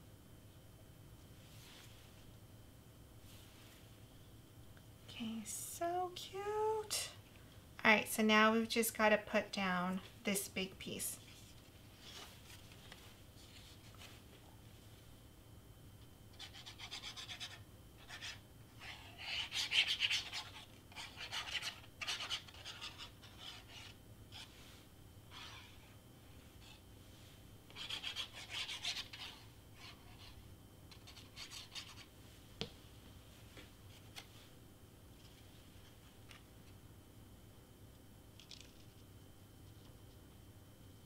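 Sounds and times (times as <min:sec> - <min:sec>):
cardstock rubbing and scratching: 0:16.4 - 0:24.6, 0:25.3 - 0:25.9, 0:27.7 - 0:32.1.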